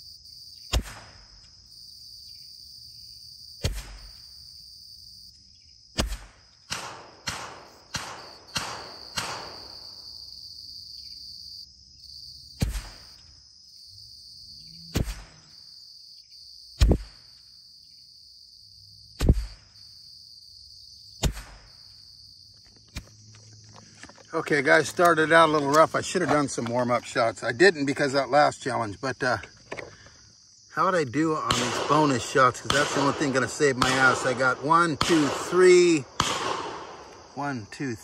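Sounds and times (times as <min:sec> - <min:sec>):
insects buzzing: 0:00.0 - 0:38.0
rifle shots: 0:00.7 - 0:01.2, 0:03.6 - 0:04.2, 0:06.0 - 0:09.8, 0:12.6 - 0:13.1, 0:14.9 - 0:15.4, 0:21.2 - 0:21.8, 0:31.5 - 0:37.4.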